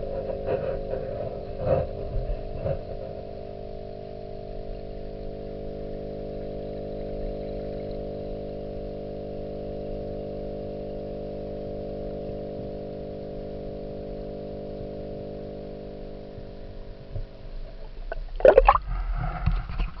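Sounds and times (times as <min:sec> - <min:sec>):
steady underwater hum: 0:00.0 - 0:20.0
water splashing: 0:17.7 - 0:19.0.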